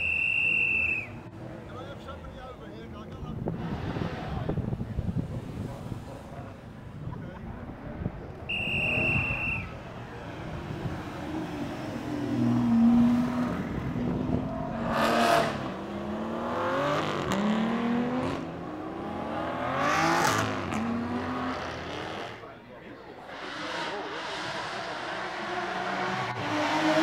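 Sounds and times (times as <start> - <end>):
sports cars accelerating past: 7.7 - 27.0.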